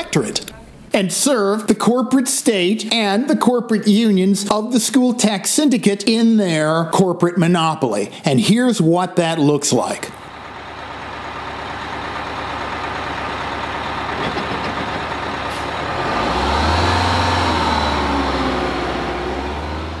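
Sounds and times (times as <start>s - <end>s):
bus engines rumbling: 9.4s - 20.0s.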